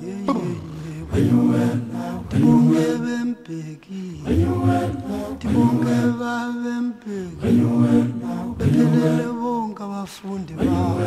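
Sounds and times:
group of voices singing in harmony: 0.0s - 11.0s.

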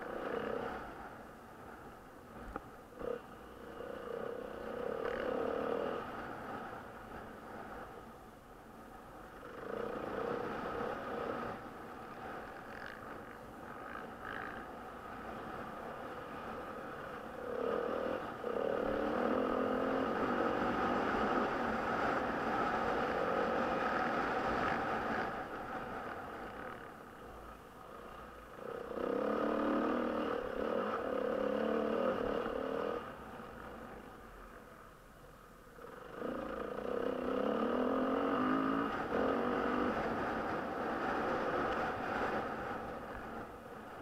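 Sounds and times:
dirt bike engine revving: 16.2s - 25.4s, 28.6s - 33.1s, 36.1s - 43.4s.

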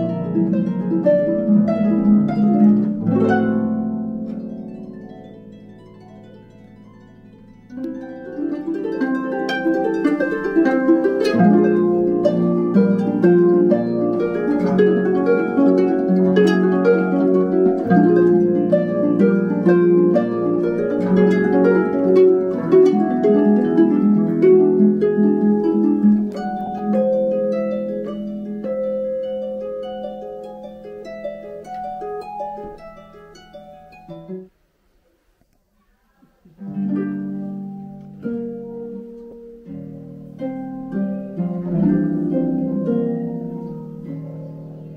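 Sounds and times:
solo harp playing: 0.0s - 34.5s, 36.5s - 44.9s.

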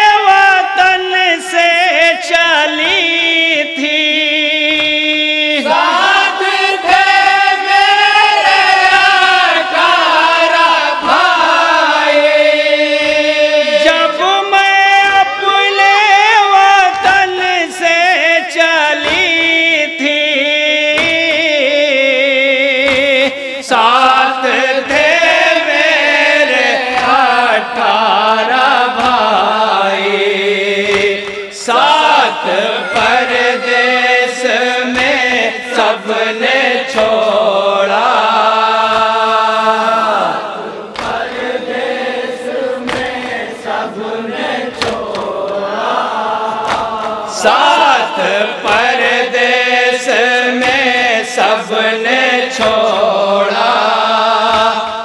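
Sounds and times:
men chanting through microphones: 0.0s - 55.0s
chest-beating slaps: 19.0s - 23.8s, 24.9s - 55.0s.

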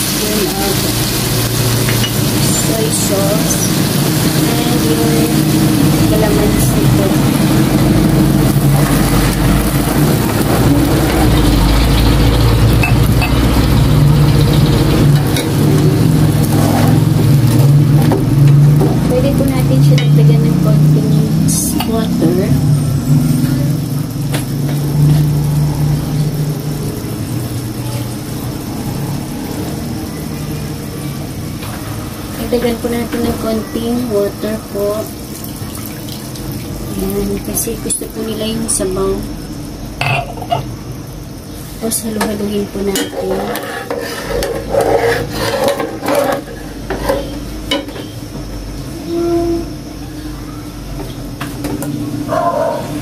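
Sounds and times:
spatula scraping in a wok: 0.0s - 19.1s, 42.7s - 48.1s
low mechanical hum: 0.0s - 53.0s.

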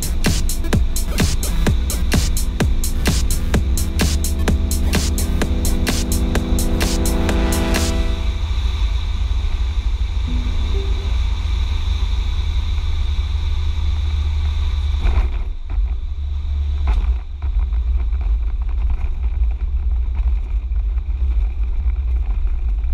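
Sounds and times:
wind rumble on microphone: 12.6s - 22.9s.

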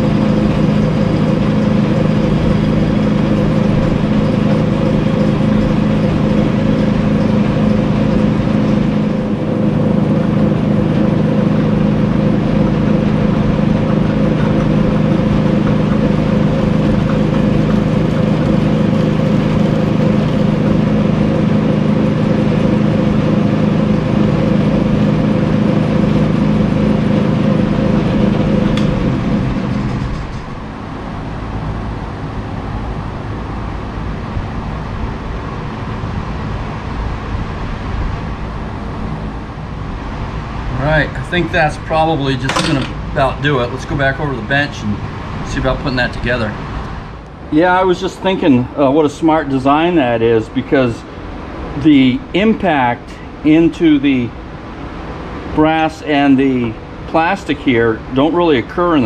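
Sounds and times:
lathe winding down: 0.0s - 34.6s, 38.2s - 59.0s
lathe humming: 0.0s - 59.0s.

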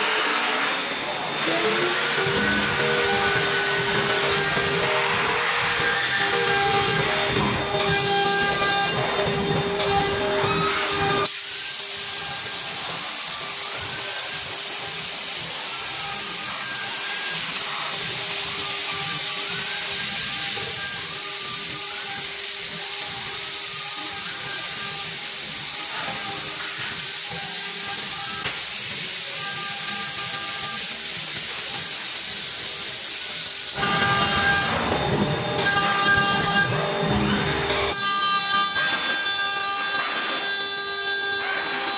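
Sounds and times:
steady machine tones: 0.0s - 41.9s
stepper motors whining: 0.0s - 41.9s
loud steady hiss: 10.4s - 34.6s.

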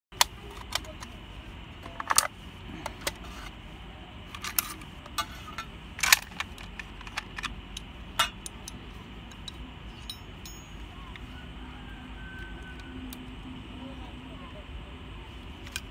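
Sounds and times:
metal clicks of rifle parts: 1.8s - 2.3s, 4.3s - 11.2s, 15.6s - 15.9s.

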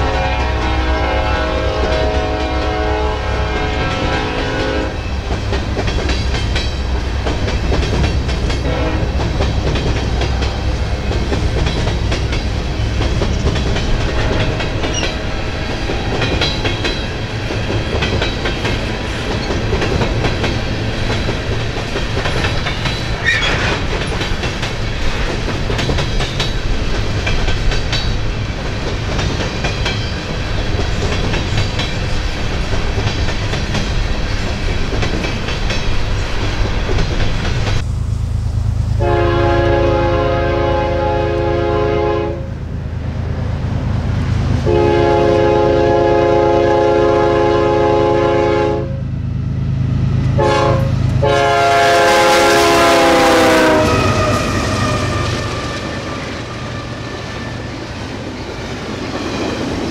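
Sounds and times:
diesel locomotive drone: 0.0s - 59.9s
train wheels clicking over rail joints: 3.6s - 38.0s, 53.7s - 59.9s
high squeal: 53.8s - 59.6s.

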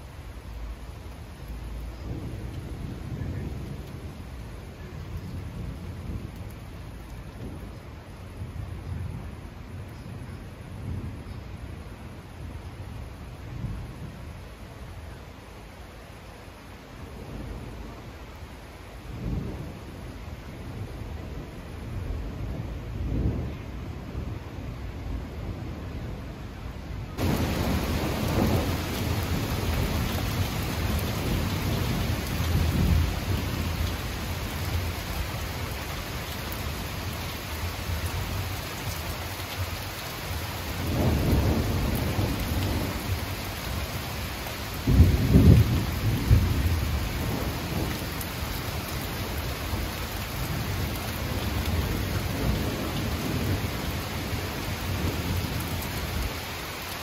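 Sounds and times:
steady rain hissing: 0.0s - 57.0s
thunder rumbling: 19.1s - 56.4s.

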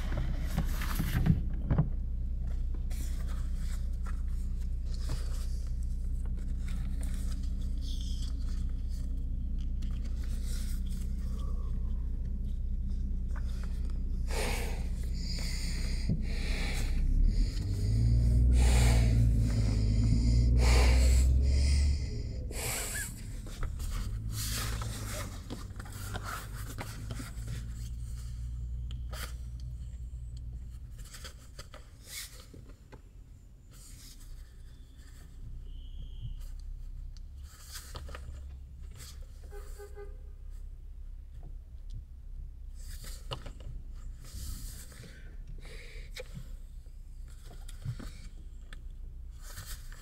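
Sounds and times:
steady low rumble: 0.0s - 31.5s.

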